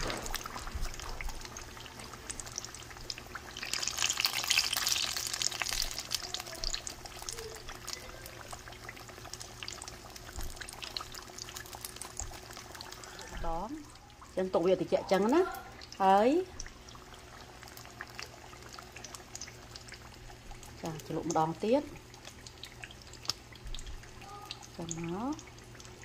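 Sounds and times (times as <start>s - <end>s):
food sizzling in hot oil: 0.0s - 26.0s.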